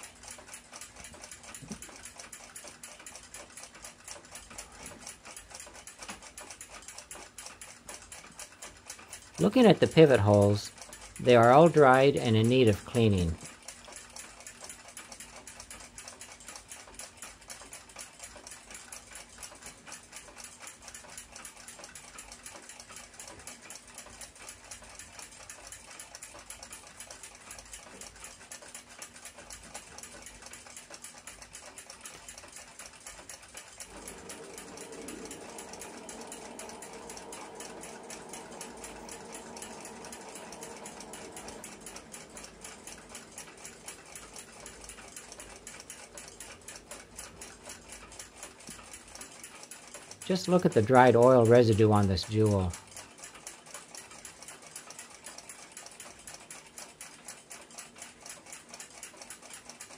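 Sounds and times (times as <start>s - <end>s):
clock ticking fast: 0.0s - 59.9s
steady hum: 33.6s - 49.3s.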